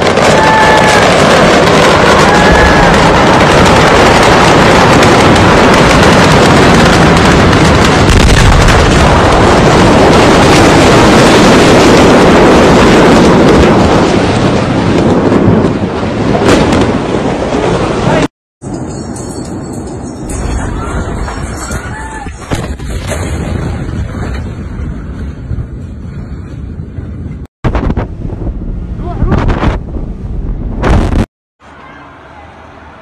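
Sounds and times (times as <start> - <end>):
sharp cracks: 0.0 - 12.1
explosion roar: 0.0 - 18.3, 27.7 - 31.7.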